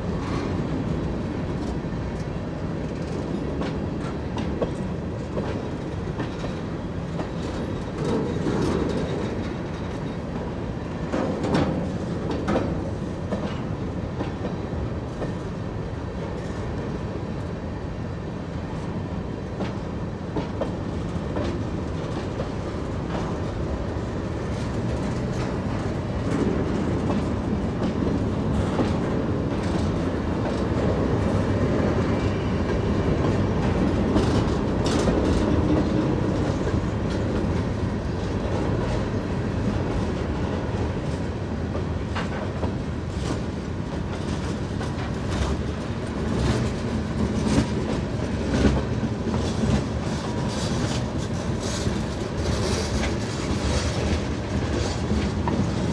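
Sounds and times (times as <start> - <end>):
steel wheels rumbling on rail: 0.0 - 55.9
wheels clicking over rail joints: 0.1 - 15.5, 19.0 - 55.9.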